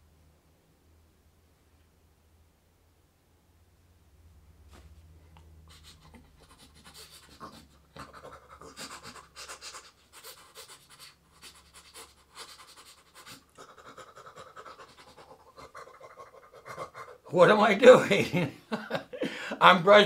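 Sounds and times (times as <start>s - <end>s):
man imitating tooth-brushing: 5.7s - 18.0s.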